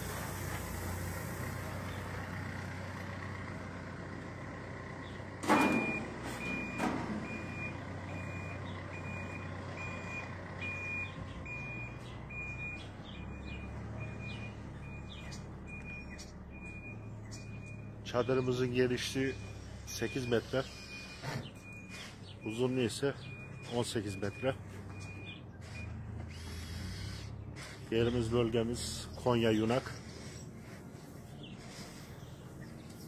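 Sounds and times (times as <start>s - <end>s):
diesel engine running: 0.0s - 33.0s
reversing alarm beeping: 5.4s - 26.0s.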